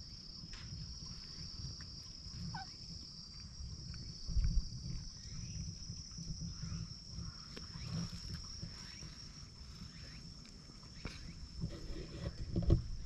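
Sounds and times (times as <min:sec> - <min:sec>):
low rumble on microphone: 0:00.0 - 0:13.0
high-pitched insect drone: 0:03.9 - 0:11.6.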